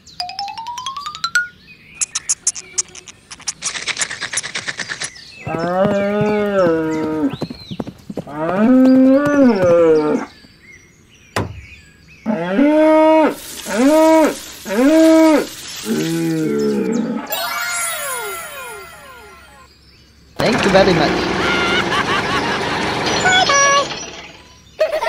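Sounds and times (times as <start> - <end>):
sharp click: 2.0 - 5.0
fast clicking rattle: 2.0 - 5.1, 22.9 - 24.5
cows mooing: 5.4 - 7.4, 8.3 - 10.3, 12.3 - 17.3.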